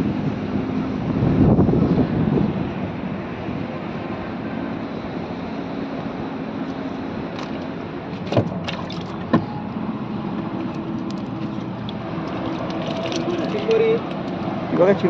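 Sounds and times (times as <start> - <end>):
wind and water: 0.0 - 15.0
sharp knocks in a boat: 7.3 - 9.6.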